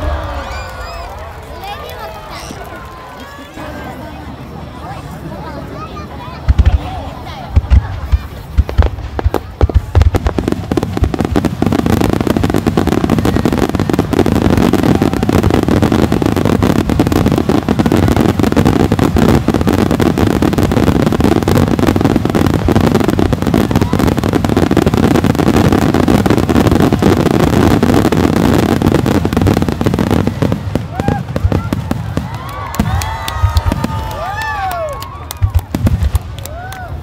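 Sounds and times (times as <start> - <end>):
fireworks launching and bursting: 0.0 - 37.0.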